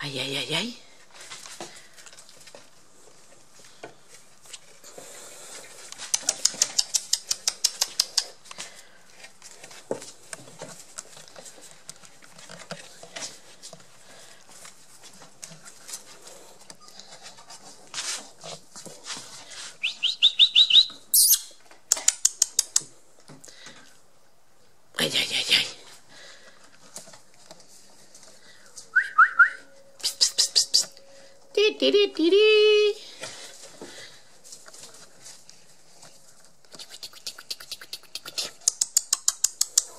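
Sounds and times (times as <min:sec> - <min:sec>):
puppies squeaking and squealing: 0:20.8 - 0:21.5.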